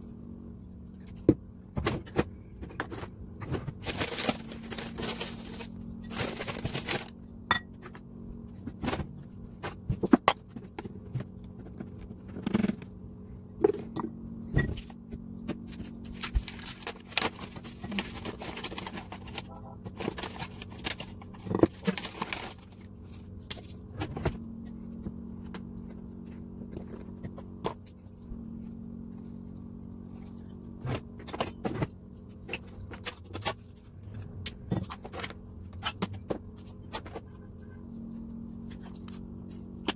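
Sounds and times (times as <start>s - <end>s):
steady low hum: 0.0s - 39.9s.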